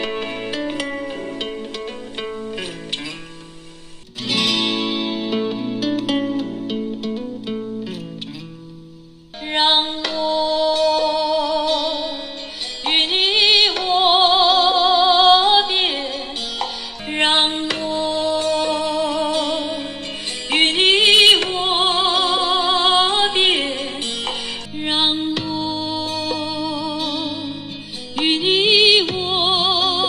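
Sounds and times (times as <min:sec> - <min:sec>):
woman singing through laptop speakers: 0:00.0 - 0:03.0, 0:09.4 - 0:30.0.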